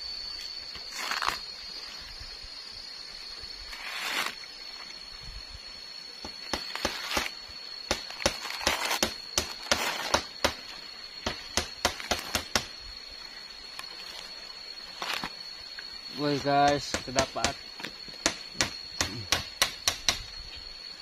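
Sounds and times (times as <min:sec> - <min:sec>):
knocks and clicks on bamboo: 0:11.2 - 0:12.7, 0:16.6 - 0:17.6, 0:18.2 - 0:20.3.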